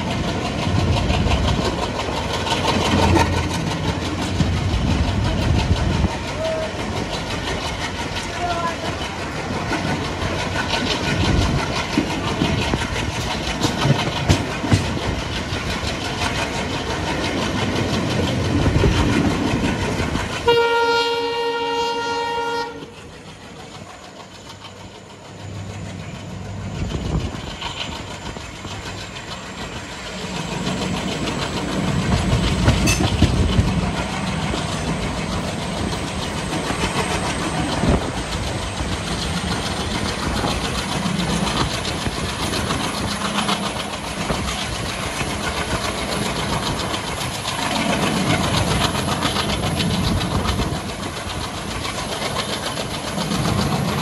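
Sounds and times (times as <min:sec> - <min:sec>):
diesel locomotive engine chugging: 0:00.0 - 0:54.0
wheels clattering over rails: 0:00.0 - 0:54.0
locomotive horn blast: 0:20.4 - 0:23.0.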